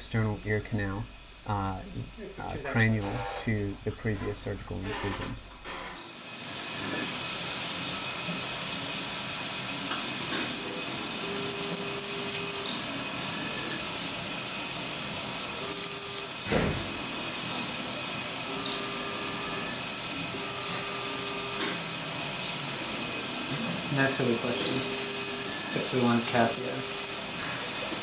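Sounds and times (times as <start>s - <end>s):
steady high hiss: 0.0s - 5.5s, 6.4s - 28.0s.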